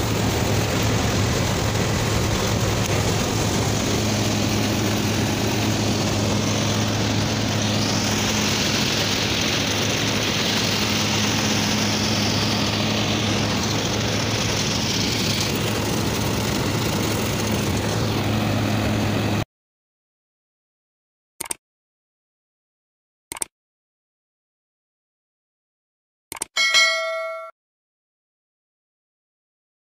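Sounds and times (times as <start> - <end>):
combine harvester droning: 0.0 - 19.4.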